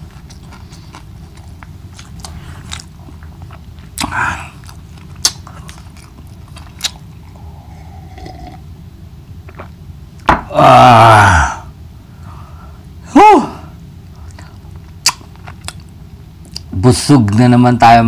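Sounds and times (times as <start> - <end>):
wet chewing and lip smacks: 0.0 - 7.3, 14.1 - 16.8
low background rumble: 0.0 - 17.4.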